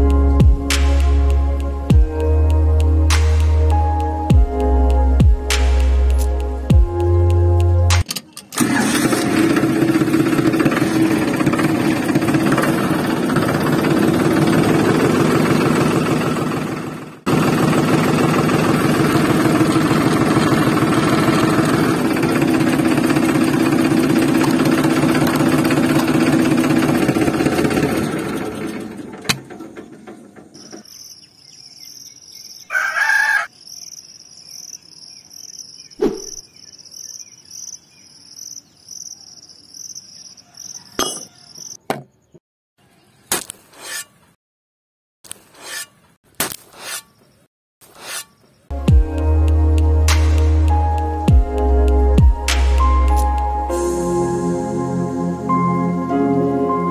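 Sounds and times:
tractor engine running: 8.0s - 30.9s
crickets chirping: 30.6s - 41.8s.

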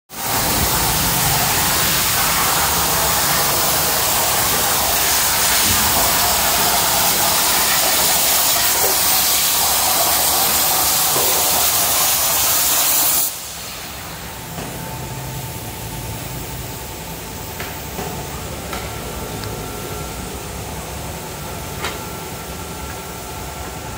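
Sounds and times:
plasma torch hissing: 0.2s - 14.2s.

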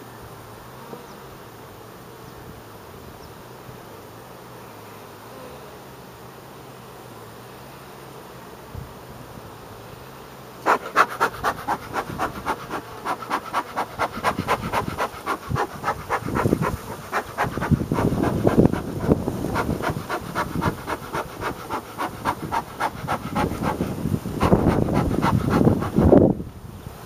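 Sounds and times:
bellows puffing: 10.6s - 26.2s.

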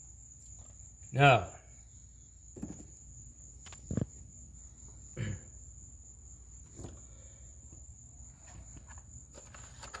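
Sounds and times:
insects trilling: 0.0s - 10.0s
dull thump: 2.5s - 3.0s.

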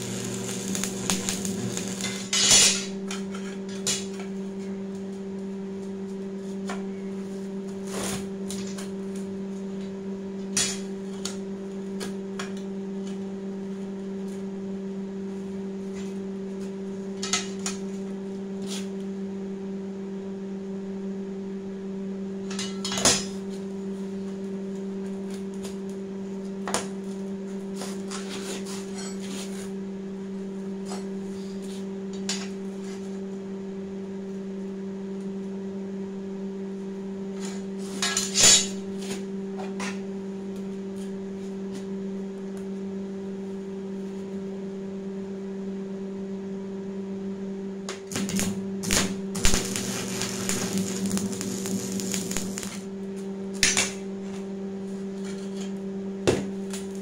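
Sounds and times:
steady low hum: 0.0s - 57.0s
steel pieces clanking and scraping: 2.0s - 3.6s.

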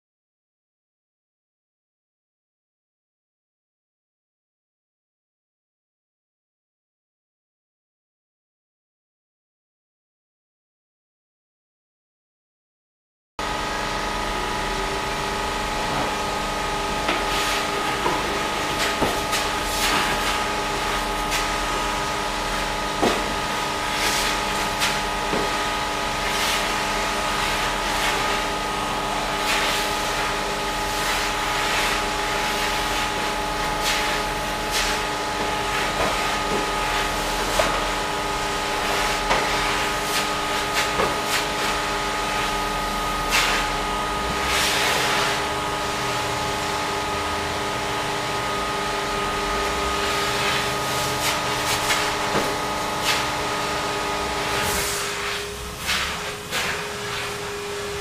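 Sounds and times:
sanding pad swishing: 17.0s - 28.5s, 29.2s - 37.9s, 38.6s - 45.5s, 49.6s - 58.0s.

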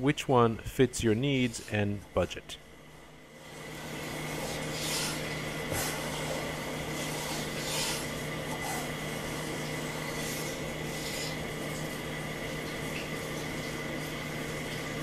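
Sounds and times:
plane shaving wood: 3.7s - 11.9s.

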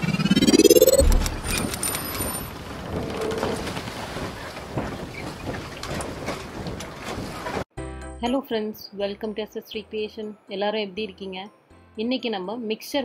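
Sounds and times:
low boom: 0.2s - 1.8s.

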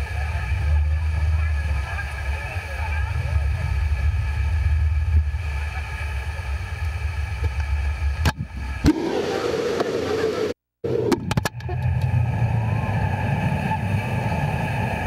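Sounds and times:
motorboat engine running: 0.0s - 15.0s.

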